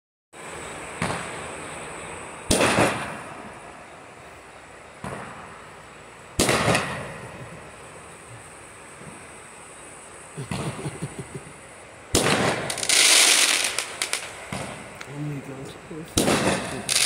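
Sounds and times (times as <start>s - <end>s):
firework crackling: 0.4s - 17.0s
firework bangs: 0.9s - 1.6s, 2.4s - 3.5s, 5.0s - 5.7s, 6.4s - 8.0s, 12.1s - 15.0s, 16.1s - 17.0s.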